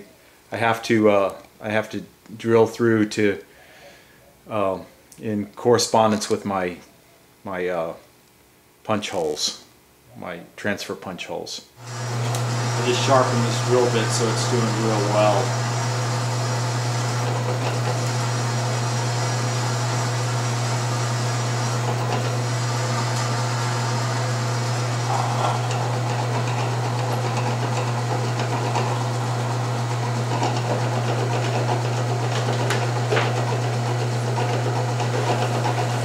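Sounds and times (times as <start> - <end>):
drill bit drilling through steel: 11.8 - 36.0
drill press humming: 11.8 - 36.0.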